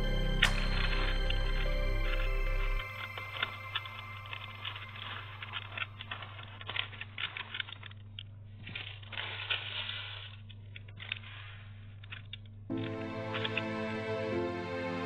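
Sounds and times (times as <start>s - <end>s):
paper crinkling: 0.6s - 14.2s
scissors snipping paper: 2.8s - 13.7s.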